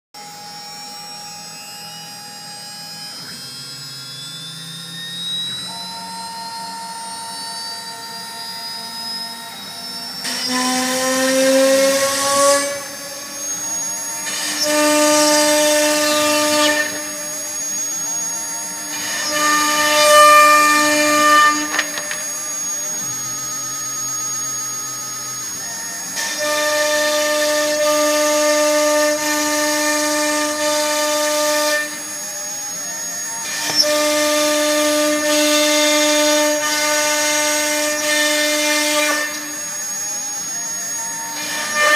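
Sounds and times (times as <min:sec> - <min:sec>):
router bit cutting fibreboard: 0:00.2 - 0:41.9
router spindle whine: 0:00.2 - 0:41.9
motors humming: 0:00.8 - 0:28.4.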